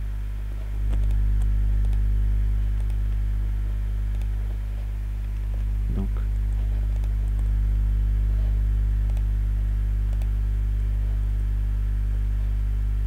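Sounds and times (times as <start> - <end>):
electrical mains hum: 0.0 - 13.0
computer mouse clicks: 0.8 - 3.2, 4.1 - 4.4, 6.4 - 7.5, 9.0 - 9.3, 10.1 - 10.3.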